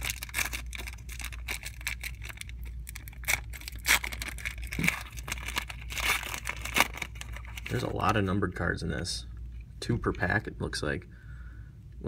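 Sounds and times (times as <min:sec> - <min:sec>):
foil wrapper tearing and crinkling: 0:00.0 - 0:08.3.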